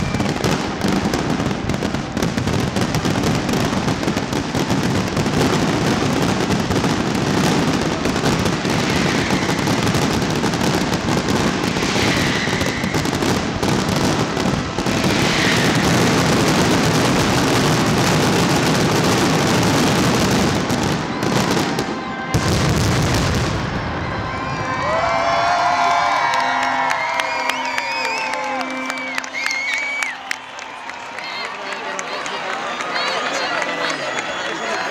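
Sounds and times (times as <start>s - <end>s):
firework whistles: 0.0s - 0.9s, 8.3s - 17.9s
fireworks bursting and crackling: 0.0s - 24.8s.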